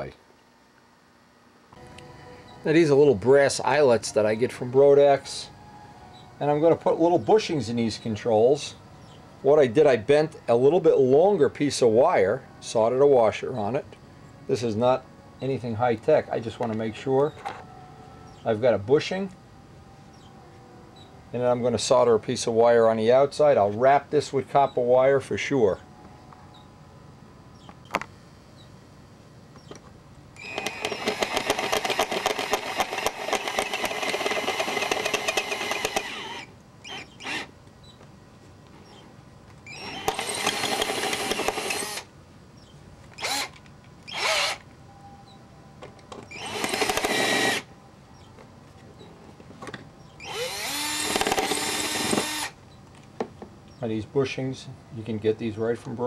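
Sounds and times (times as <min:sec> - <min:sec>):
cordless drill drilling metal: 0:30.4 - 0:37.5, 0:39.7 - 0:42.1, 0:43.2 - 0:44.6, 0:46.3 - 0:47.7, 0:50.2 - 0:52.6.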